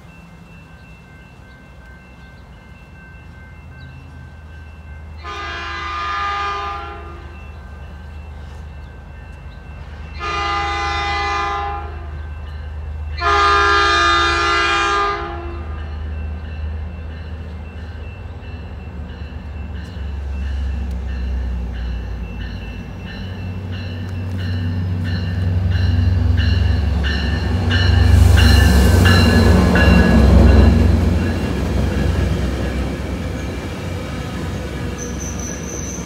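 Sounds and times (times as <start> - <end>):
train rumble: 0.0 - 36.0
train horn blasts: 5.2 - 7.4, 10.1 - 12.3, 13.2 - 15.9.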